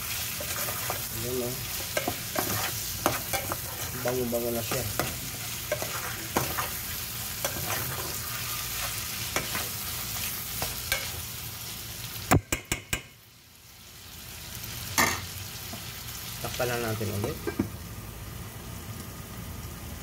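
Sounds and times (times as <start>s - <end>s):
chicken sizzling in pot: 0.0s - 20.0s
spoon scraping pot: 1.8s - 6.8s, 7.4s - 9.7s
spoon knocking on pot: 12.3s - 13.1s.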